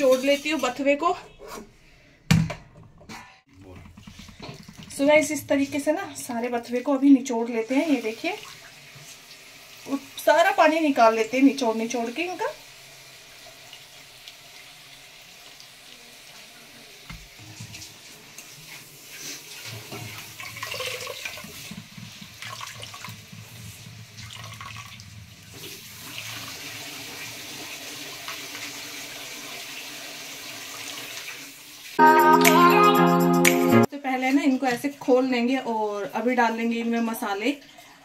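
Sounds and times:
music: 32.0 - 33.9.

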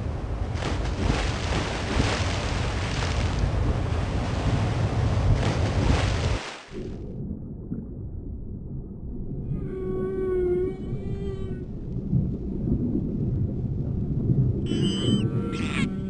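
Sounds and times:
muffled underwater rumble: 0.0 - 6.0, 6.8 - 16.0
waves washing in and out: 0.0 - 7.0.

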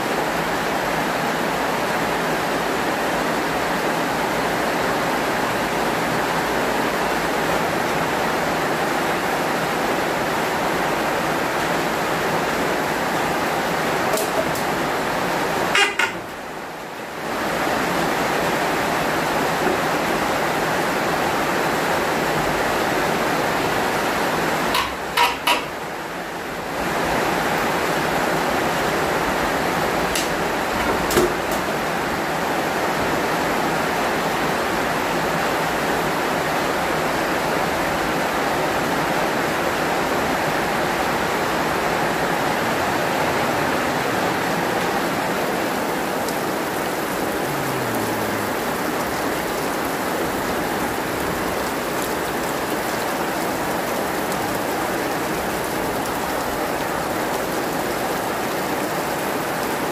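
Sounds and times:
heavy rain: 0.0 - 59.9
sharp knocks: 15.8 - 16.3, 24.8 - 25.7.

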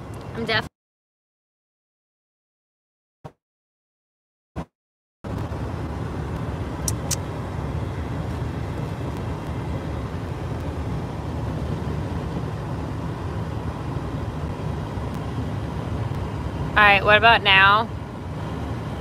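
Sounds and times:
low rumbling background noise: 5.3 - 19.0.

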